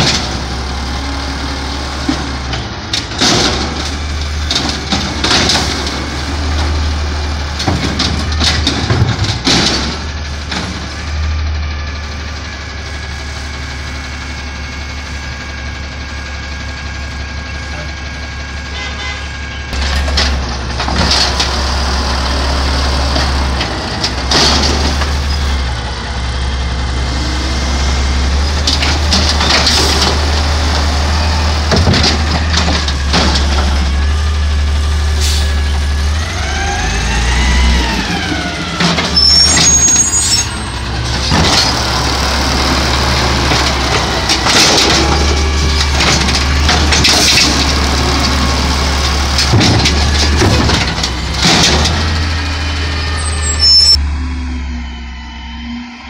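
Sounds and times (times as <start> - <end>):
diesel truck engine running: 0.0 - 56.0
high-pitched brake squeals: 39.1 - 40.7, 53.1 - 56.0.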